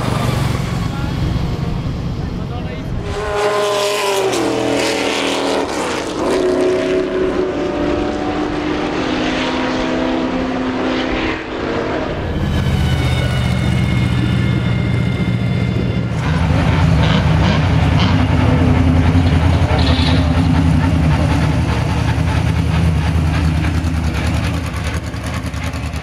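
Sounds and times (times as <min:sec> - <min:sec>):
race car engine at low revs: 0:00.0 - 0:12.5, 0:15.8 - 0:26.0.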